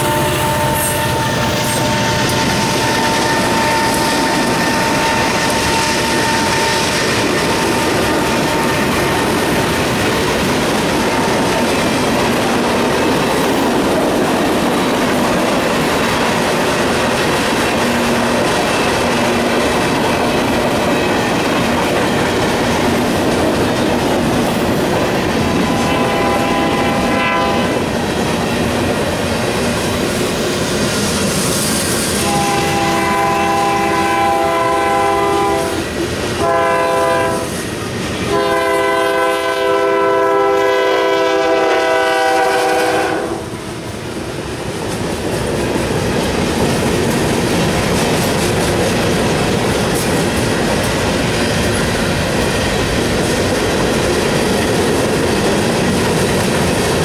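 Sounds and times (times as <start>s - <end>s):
locomotive horn: 0.0s - 9.3s, 25.5s - 27.9s, 32.2s - 35.8s, 36.4s - 37.6s, 38.3s - 43.6s
freight train wheels rumbling: 0.0s - 57.0s
clickety-clack over rail joints: 1.6s - 33.2s, 44.3s - 57.0s.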